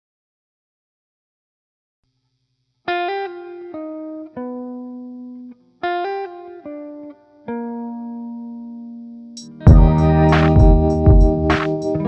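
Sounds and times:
plucked guitar phrase: 9.5s - 12.0s.

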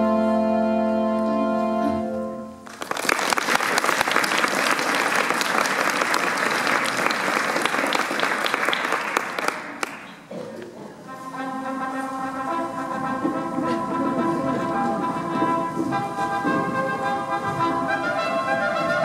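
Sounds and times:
audience applauding: 2.6s - 10.3s.

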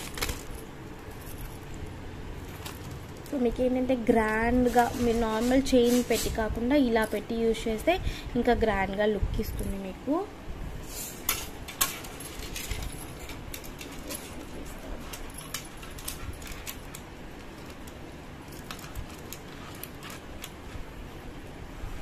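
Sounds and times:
metal jewellery chains jingling: 0.0s - 3.3s, 11.8s - 17.0s.

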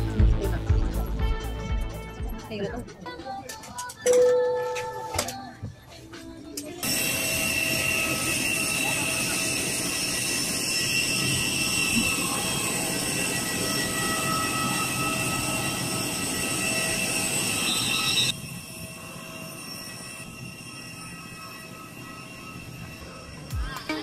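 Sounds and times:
jet airliner whine: 6.8s - 24.0s.

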